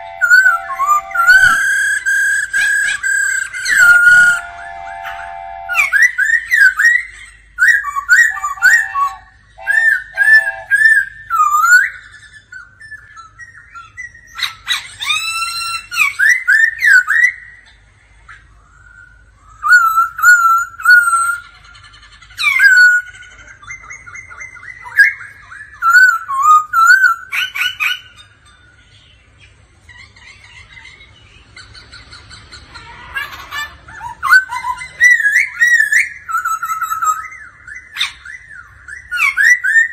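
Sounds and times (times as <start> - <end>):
bird singing whistled phrases: 0.0 - 17.6, 18.7 - 21.5, 23.8 - 28.3, 34.0 - 39.9.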